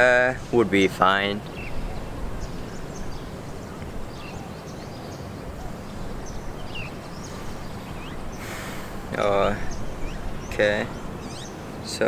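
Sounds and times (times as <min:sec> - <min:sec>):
wind on microphone: 0:01.2 - 0:11.8
burst of hiss: 0:08.3 - 0:09.0.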